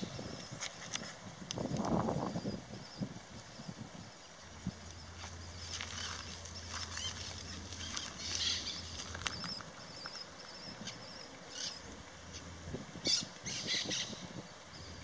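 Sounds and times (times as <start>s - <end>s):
small birds chirping: 0.0s - 15.0s
warbling high bird trill: 5.0s - 15.0s.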